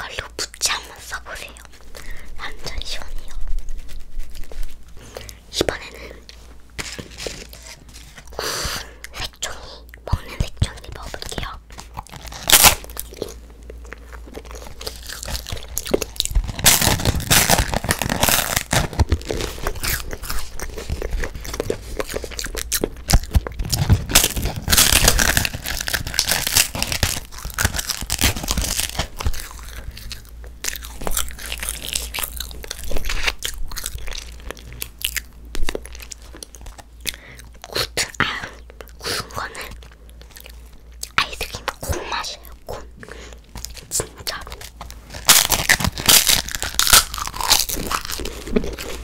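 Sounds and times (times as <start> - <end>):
crunchy biting and chewing: 11.4 - 42.4, 43.0 - 49.0.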